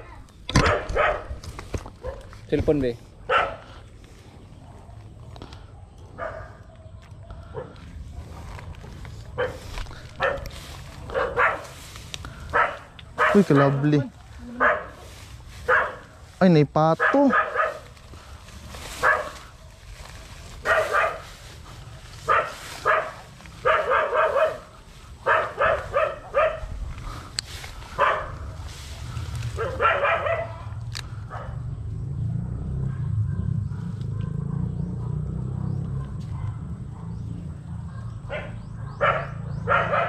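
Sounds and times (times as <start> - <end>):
dog barking: 0.6 - 1.4, 2.0 - 2.4, 3.2 - 3.8, 6.1 - 7.9, 9.4 - 11.8, 12.5 - 15.0, 15.6 - 16.2, 17.0 - 17.9, 19.0 - 19.8, 20.6 - 21.3, 22.2 - 26.8, 27.9 - 28.7, 29.6 - 31.7, 32.7 - 40.0
low rumble: 26.2 - 39.6.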